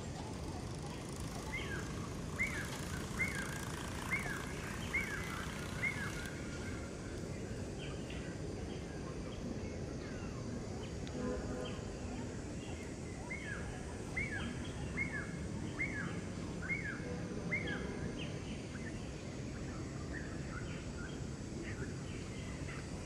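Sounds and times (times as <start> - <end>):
faint chirps: 0.0 - 23.0
low outdoor background noise: 0.0 - 23.0.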